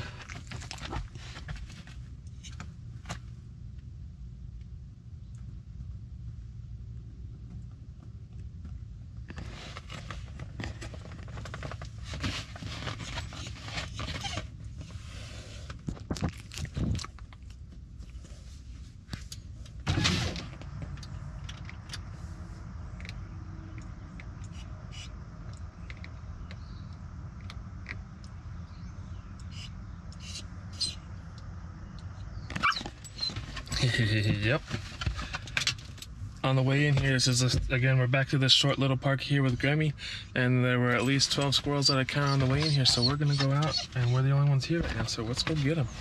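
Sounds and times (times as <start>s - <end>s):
car cabin rumble: 30.8s - 46.0s.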